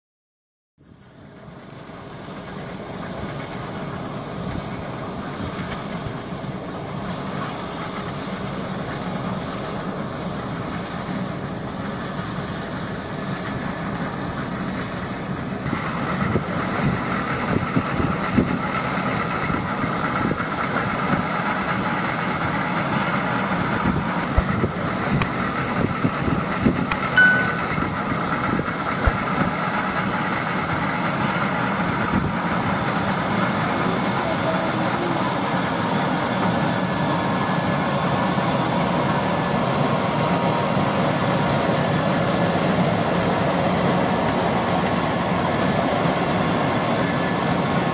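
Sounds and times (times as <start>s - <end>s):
combine harvester running: 0.8s - 47.9s
high whine: 26.9s - 29.2s.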